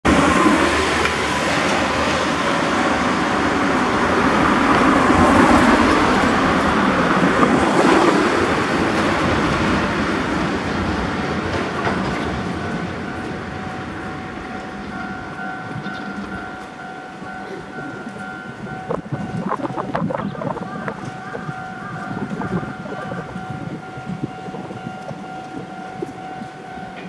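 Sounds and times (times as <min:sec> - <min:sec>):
truck engine and tyres passing: 0:00.1 - 0:16.3.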